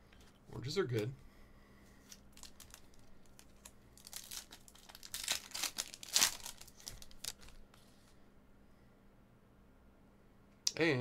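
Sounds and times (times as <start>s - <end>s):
wrapper crinkling and tearing: 2.1s - 7.6s.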